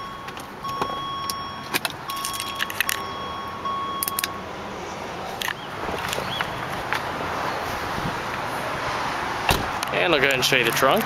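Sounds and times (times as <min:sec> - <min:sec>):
electronic warning tone: 0:00.0 - 0:04.5
car keys jangling: 0:00.2 - 0:03.2, 0:03.9 - 0:04.4.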